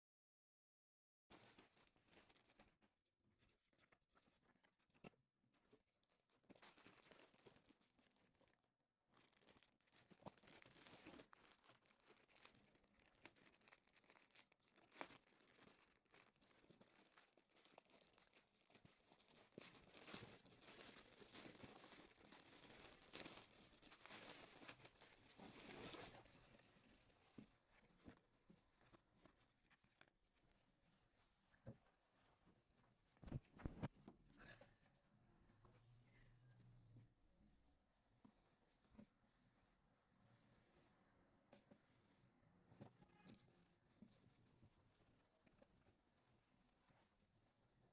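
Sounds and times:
plastic bag crinkling: 6.0s - 27.4s.

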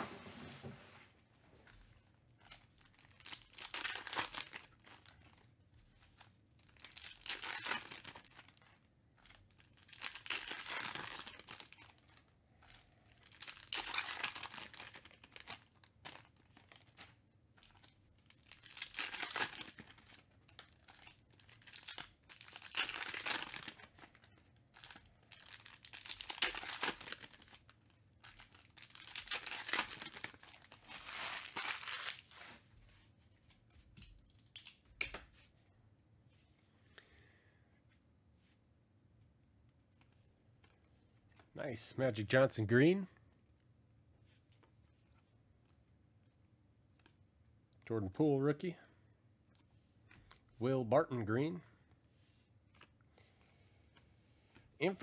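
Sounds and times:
foil wrappers tearing and crinkling: 2.5s - 5.4s, 6.6s - 8.8s, 9.4s - 24.2s, 24.8s - 32.6s.

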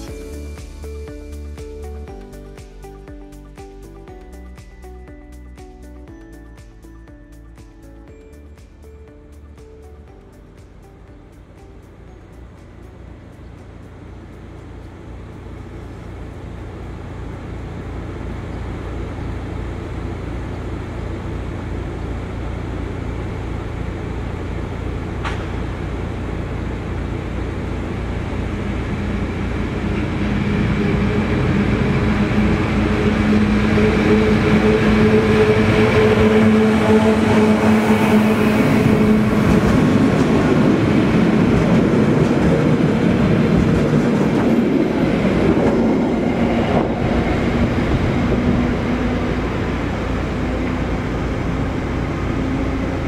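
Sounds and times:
electric locomotive passing: 0.0s - 53.0s.

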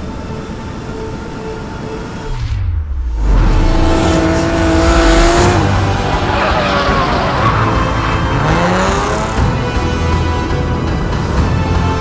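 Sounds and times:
car engine revving: 2.2s - 11.6s
tyres squealing: 5.6s - 9.6s.

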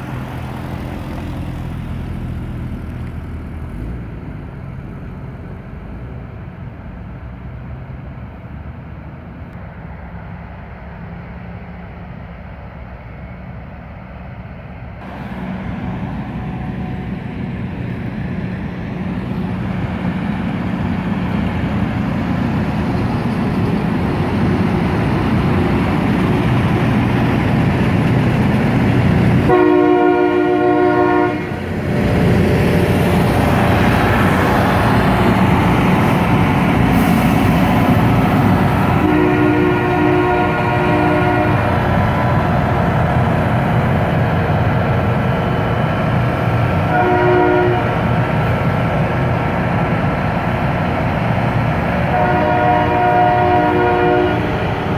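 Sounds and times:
rail grinder machinery grinding: 15.0s - 54.9s
rail grinder horn: 29.4s - 31.6s, 38.9s - 41.8s, 46.9s - 48.1s, 52.0s - 54.9s.

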